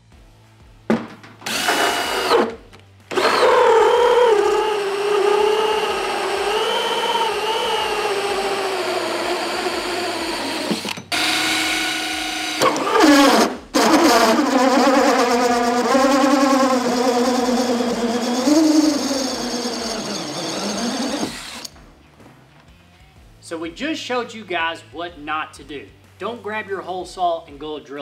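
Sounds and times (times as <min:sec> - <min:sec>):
drill motor whining: 0:01.4 - 0:21.7.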